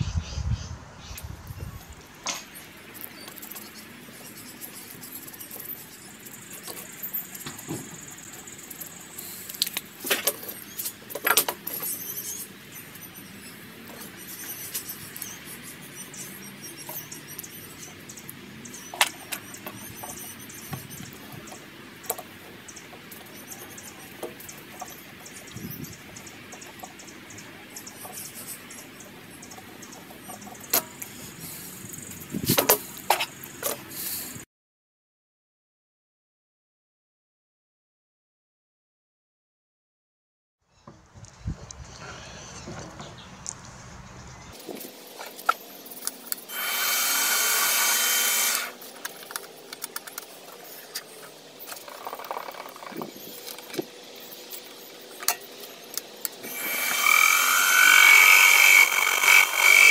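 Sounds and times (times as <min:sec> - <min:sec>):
hand tools clicking and knocking: 0:55.2 - 0:59.9.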